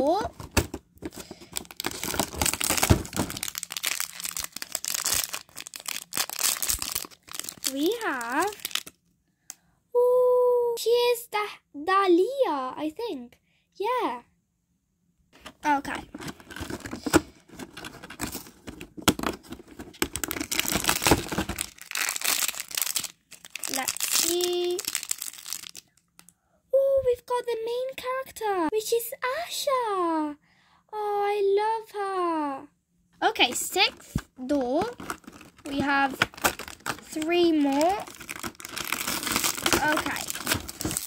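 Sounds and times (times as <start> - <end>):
plastic wrapper crinkling: 0.0 - 9.0, 15.9 - 26.3, 33.4 - 41.0
cardboard tearing: 0.6 - 7.9, 34.9 - 41.0.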